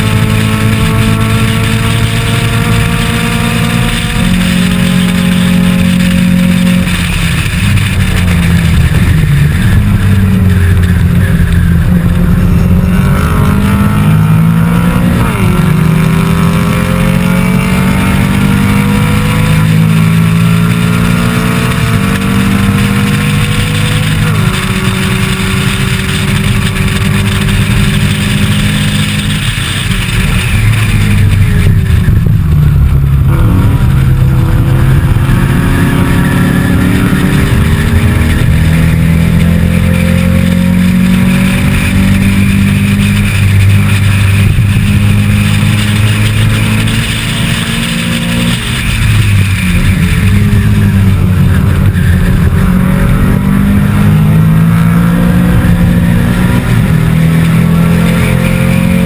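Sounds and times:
race car engine under hard throttle: 0:00.0 - 0:59.0.

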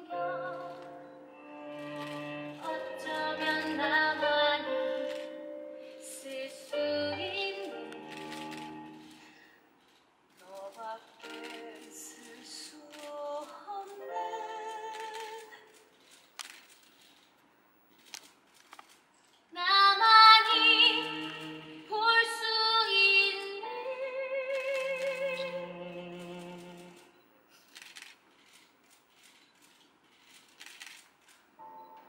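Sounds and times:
woman singing ballad: 0:00.0 - 0:08.3, 0:10.5 - 0:15.6, 0:19.6 - 0:26.0.

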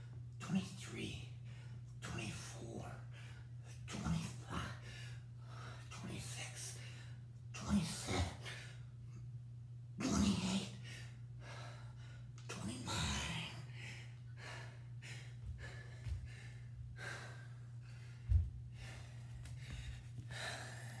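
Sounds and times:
man breathing hard: 0:04.6 - 0:06.0, 0:10.7 - 0:21.0.

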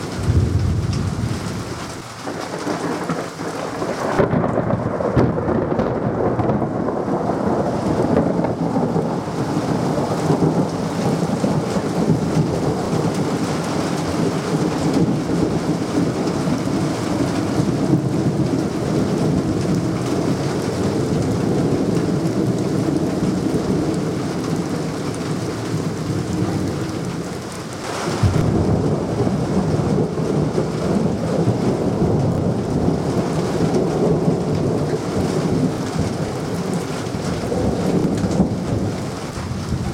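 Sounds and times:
heavy rain: 0:00.0 - 0:39.9
rolling thunder: 0:00.0 - 0:39.9.

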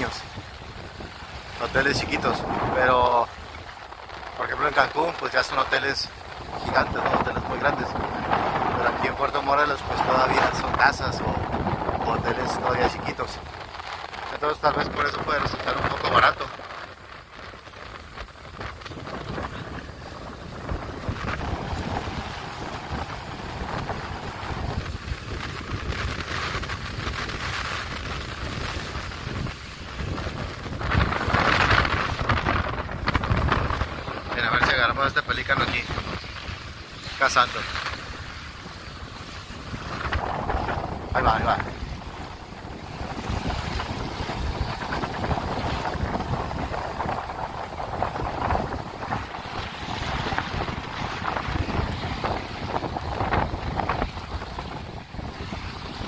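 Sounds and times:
small waves washing on sand: 0:00.0 - 0:56.0
wind buffeting microphone: 0:00.0 - 0:56.0
low rumble: 0:13.4 - 0:56.0.

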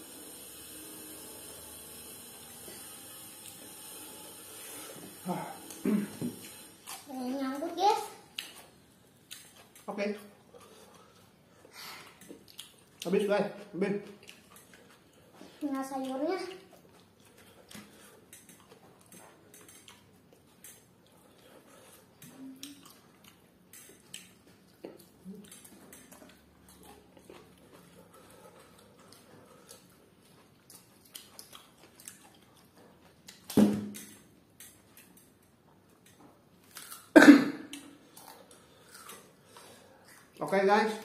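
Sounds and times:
soft chewing: 0:08.3 - 0:33.5, 0:34.4 - 0:37.1, 0:37.7 - 0:40.6.

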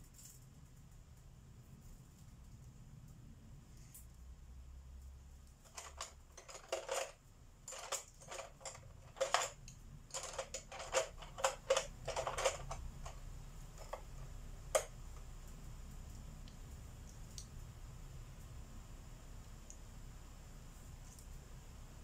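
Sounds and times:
small hard objects clicking: 0:05.5 - 0:17.6.

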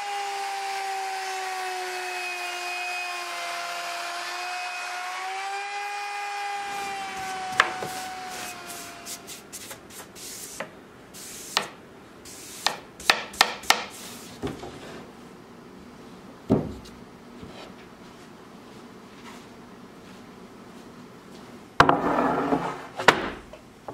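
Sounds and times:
brush rubbing on wood: 0:07.8 - 0:10.6.

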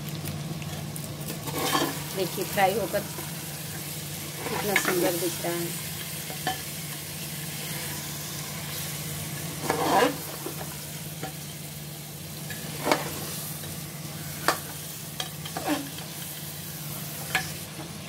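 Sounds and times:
steady low hum: 0:00.0 - 0:17.9
meat sizzling in a pot: 0:00.0 - 0:18.0
metal spatula scraping a pot: 0:01.3 - 0:02.0, 0:09.5 - 0:11.3, 0:12.5 - 0:13.3, 0:14.3 - 0:16.1.

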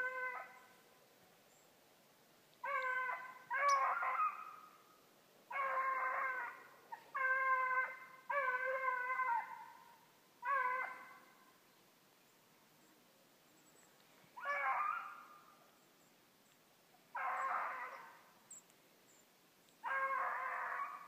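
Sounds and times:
beagles baying: 0:02.6 - 0:04.8, 0:05.5 - 0:11.3, 0:14.4 - 0:15.5, 0:17.1 - 0:18.2, 0:19.8 - 0:21.0.

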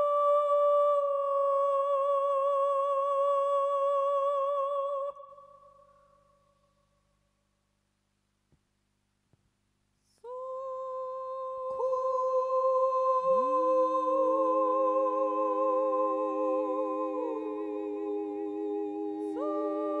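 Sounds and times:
voices humming held notes: 0:13.7 - 0:20.0.

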